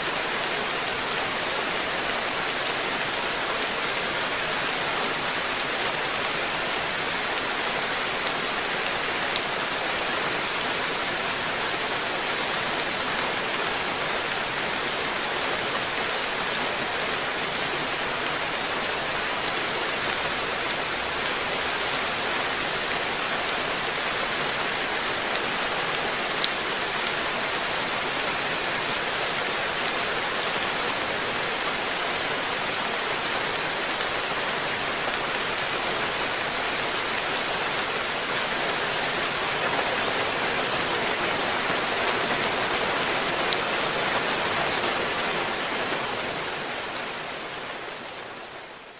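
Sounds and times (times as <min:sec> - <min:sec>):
rain falling on a pond: 0:00.0 - 0:48.9.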